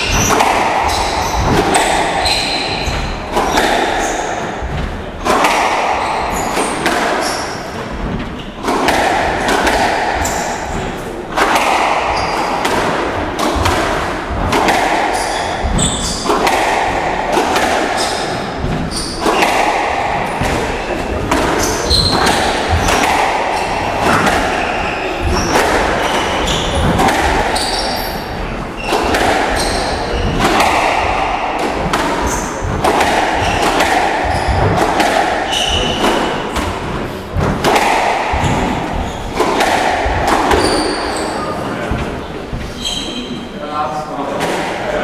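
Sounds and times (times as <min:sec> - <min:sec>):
shoes squeaking on court floor: 0:00.0 - 0:08.7, 0:12.0 - 0:12.6, 0:15.0 - 0:16.3, 0:17.9 - 0:19.6, 0:20.3 - 0:34.8, 0:35.4 - 0:36.9, 0:38.3 - 0:39.5, 0:40.5 - 0:43.5
squash ball thuds: 0:00.0 - 0:42.8.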